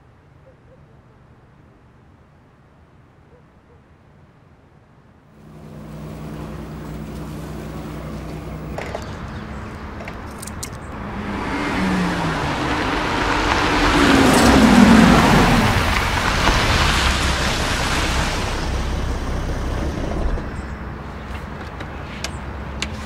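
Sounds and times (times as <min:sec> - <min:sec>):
low steady hum: 0:05.3 - 0:21.6
car driving up: 0:05.4 - 0:23.0.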